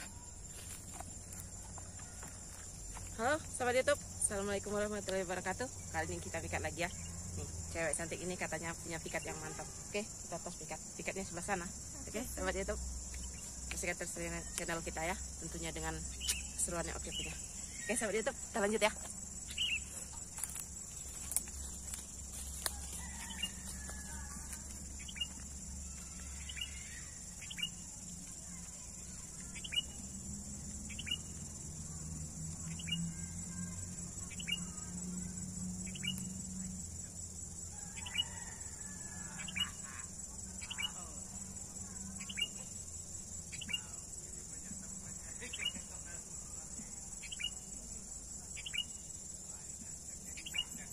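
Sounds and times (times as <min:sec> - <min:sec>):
insect drone: 0:00.0 - 0:50.9
bird chirps: 0:16.0 - 0:18.5, 0:19.4 - 0:20.4, 0:24.9 - 0:30.1, 0:30.8 - 0:31.4, 0:32.5 - 0:36.6, 0:42.2 - 0:42.8, 0:45.3 - 0:46.0, 0:47.2 - 0:47.7, 0:48.5 - 0:49.1, 0:50.3 - 0:50.9.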